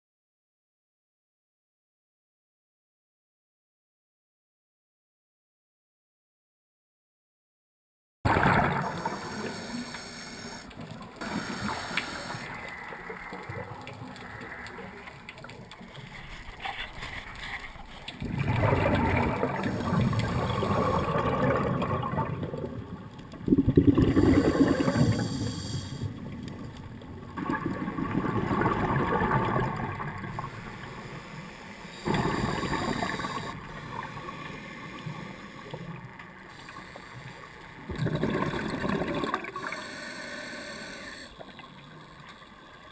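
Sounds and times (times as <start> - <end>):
gush of exhaled bubbles: 8.3 - 10.5, 18.2 - 30.6, 32.0 - 34.4, 37.9 - 40.0
regulator breathing hiss: 8.8 - 13.0, 24.2 - 26.2, 30.4 - 37.6, 39.5 - 41.4.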